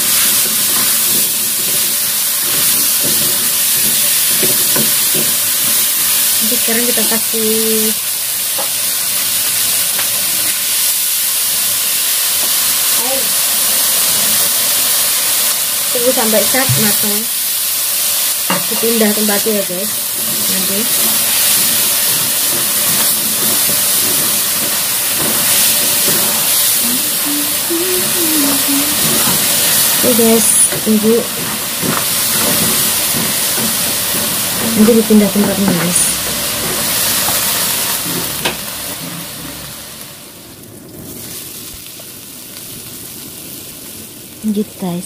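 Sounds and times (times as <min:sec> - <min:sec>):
spatula stirring in a wok: 0:00.0 - 0:06.4, 0:17.6 - 0:27.3, 0:28.4 - 0:39.6
fish frying in oil: 0:00.0 - 0:45.0
food sizzling in a wok: 0:00.0 - 0:45.0.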